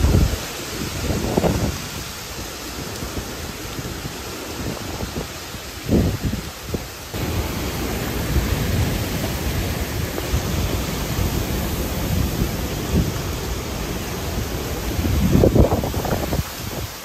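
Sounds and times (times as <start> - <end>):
hurricane wind and rain: 0.0 - 17.0
wind buffeting microphone: 0.0 - 17.0.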